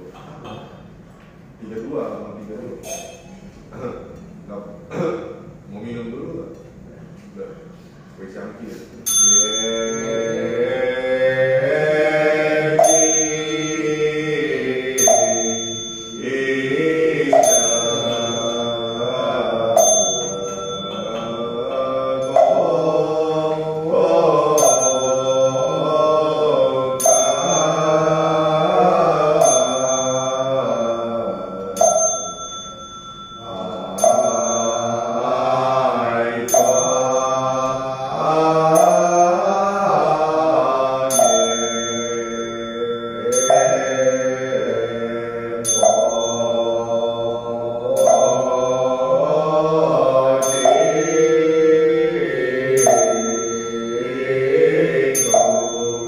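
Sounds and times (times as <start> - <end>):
group chanting prayer: 0.0 - 1.0, 1.6 - 56.0
small bell ringing: 2.8 - 3.4, 9.0 - 11.0, 12.6 - 23.0, 23.8 - 37.9, 38.7 - 39.6, 41.1 - 56.0.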